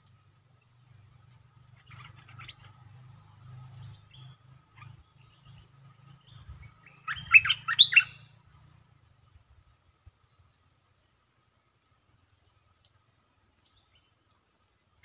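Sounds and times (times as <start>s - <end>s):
bulbul chirps: 6.3s - 8.3s.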